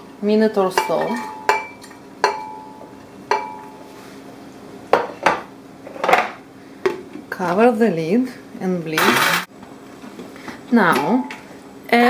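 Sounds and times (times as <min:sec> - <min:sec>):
glass ringing: 0:00.8 - 0:03.8.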